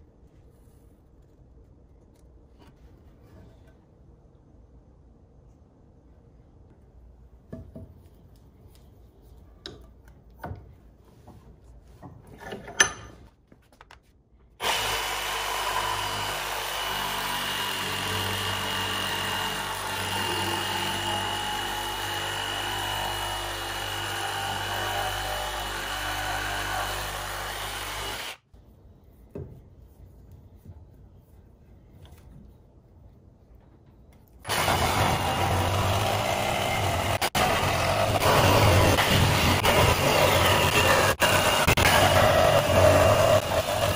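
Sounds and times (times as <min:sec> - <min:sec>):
reciprocating saw cutting wood: 0:14.6 - 0:28.4, 0:34.5 - 0:43.9.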